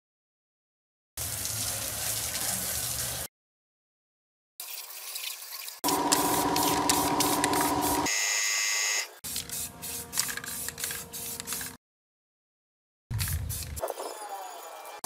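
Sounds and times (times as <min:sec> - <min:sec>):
high whine: 0:05.8 - 0:08.1
pressure washer running: 0:05.8 - 0:08.1
spray paint can hissing: 0:05.8 - 0:08.1, 0:09.2 - 0:11.8, 0:13.1 - 0:13.9.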